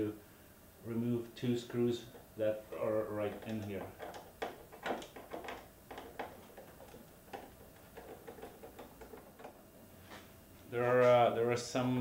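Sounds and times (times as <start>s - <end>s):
screwdriver clicking on screws: 3.2s - 9.6s.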